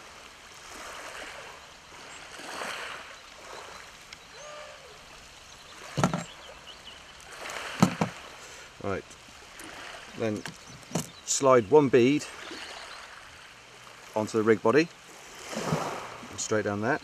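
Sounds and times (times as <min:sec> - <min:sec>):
sea washing on shingle: 0:00.0 - 0:17.0
short thump: 0:06.0 - 0:06.3, 0:07.8 - 0:08.2, 0:10.4 - 0:11.1.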